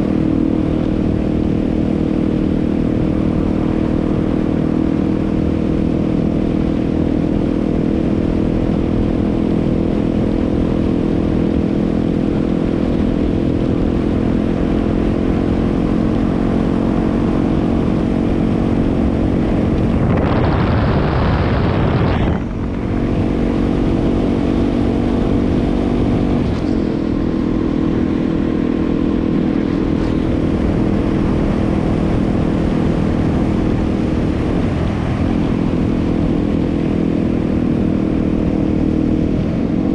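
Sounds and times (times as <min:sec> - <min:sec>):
motorcycle engine cruising: 0:00.0 - 0:39.9
loud rush of noise: 0:19.2 - 0:24.5.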